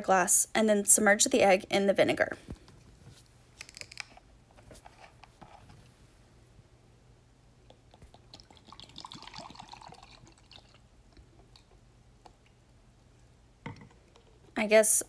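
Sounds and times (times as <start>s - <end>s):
liquid trickling into glass: 8.0s - 10.9s.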